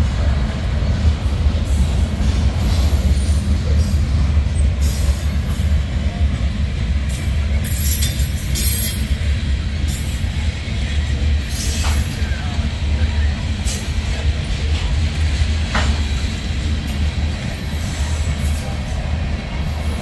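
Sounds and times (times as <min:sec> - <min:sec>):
freight train rumble: 0:00.0 - 0:20.0
high wheel squeal: 0:07.6 - 0:10.2.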